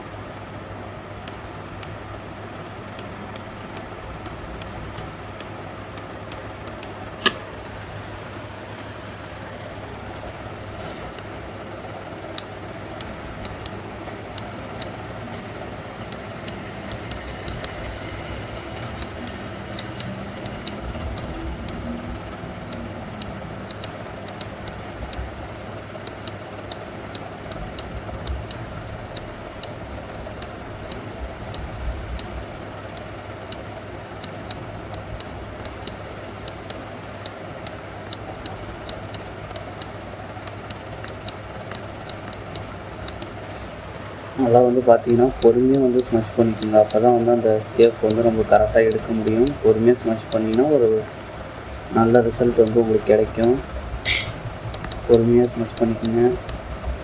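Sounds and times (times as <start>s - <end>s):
low room hum: 0.0s - 57.0s
computer mouse clicking: 2.9s - 7.4s, 12.3s - 15.0s, 16.1s - 17.8s, 19.0s - 21.8s, 22.7s - 25.2s, 26.0s - 32.3s, 32.9s - 33.6s, 34.2s - 43.8s, 44.5s - 47.2s, 47.8s - 50.8s, 52.0s - 56.6s.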